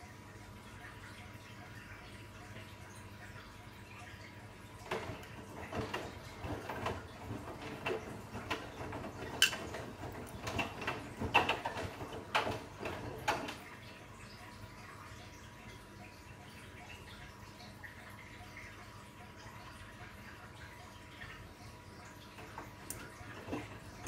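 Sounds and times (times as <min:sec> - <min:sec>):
washing machine drum turning: 0:04.7 - 0:14.0, 0:22.2 - 0:24.0
laundry tumbling knocks: 0:04.8 - 0:13.6.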